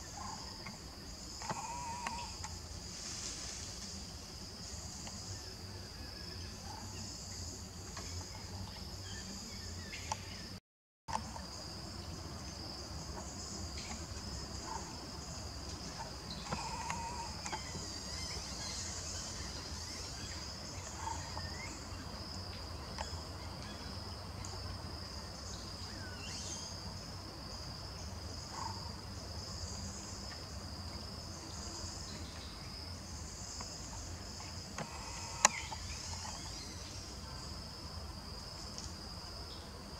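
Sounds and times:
insect chorus drone: 0.0s - 39.9s.

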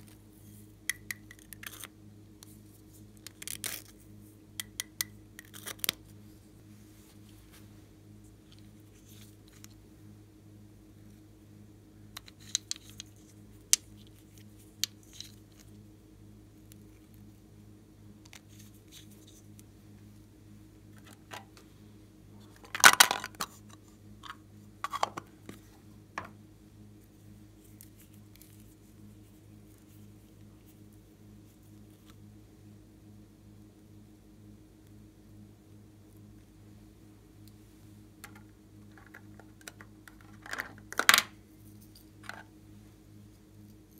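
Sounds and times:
low steady hum: 0.0s - 43.9s
clicks and taps of plastic tubes: 0.9s - 1.6s.

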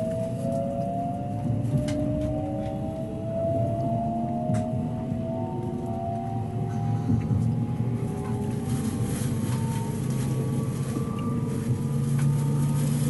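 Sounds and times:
electric train motors whining: 0.0s - 8.7s
low running hum: 0.0s - 13.0s
train rolling noise: 0.0s - 13.0s.

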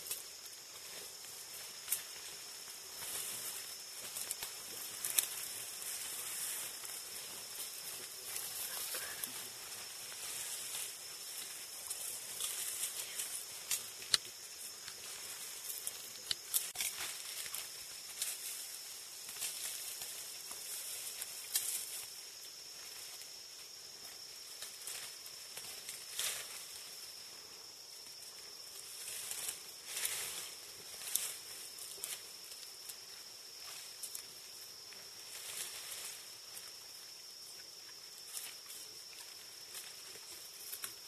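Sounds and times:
leaves rustling: 0.0s - 41.0s
stems and twigs snapping: 13.7s - 15.0s.

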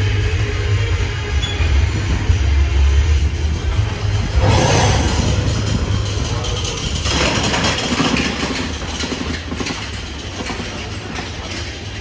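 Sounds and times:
roller coaster rumbling on track: 0.0s - 12.0s.

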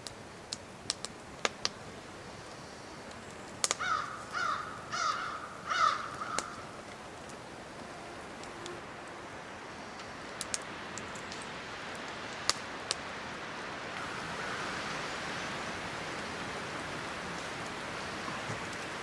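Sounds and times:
fire popping and crackling: 0.0s - 4.9s, 5.9s - 8.6s, 9.9s - 13.2s, 15.6s - 19.0s
steady hiss: 0.0s - 19.0s.

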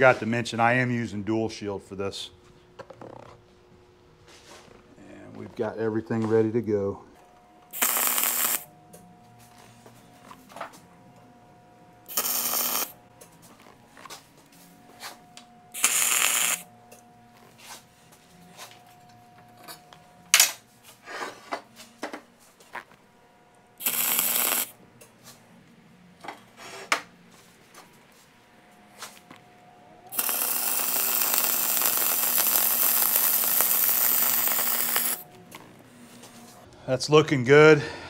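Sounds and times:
crackling welding arc: 7.7s - 8.7s, 12.1s - 13.0s, 15.7s - 16.7s, 23.8s - 24.8s, 30.1s - 35.3s.

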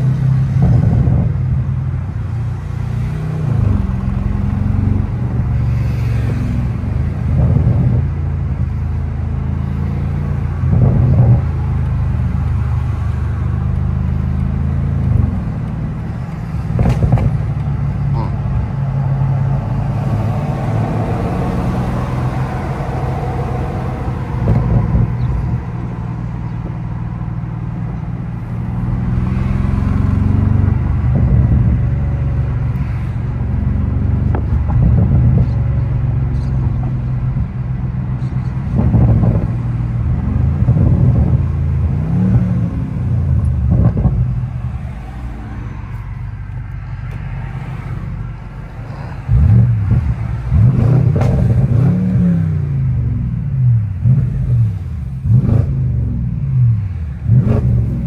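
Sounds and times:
car exhaust drone: 0.0s - 58.0s.

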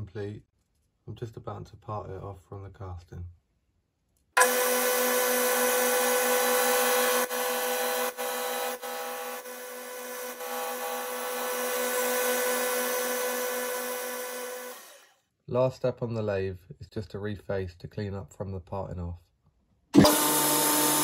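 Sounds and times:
lathe whine: 4.4s - 15.1s.

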